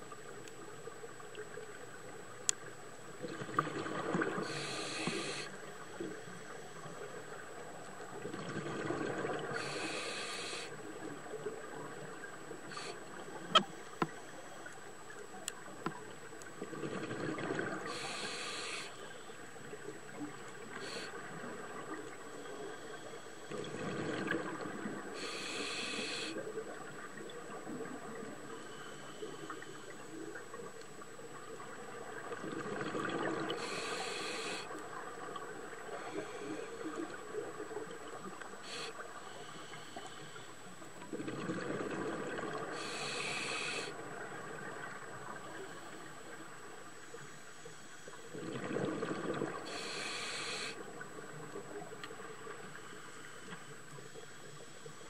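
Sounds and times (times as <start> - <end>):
water noise: 0.0 - 55.0
regulator hiss: 4.4 - 5.6, 9.5 - 10.8, 12.6 - 13.1, 17.8 - 19.2, 25.2 - 26.4, 33.5 - 34.7, 38.6 - 40.5, 42.7 - 43.9, 49.6 - 50.8
exhaled bubbles rushing: 41.1 - 42.7, 48.3 - 49.6.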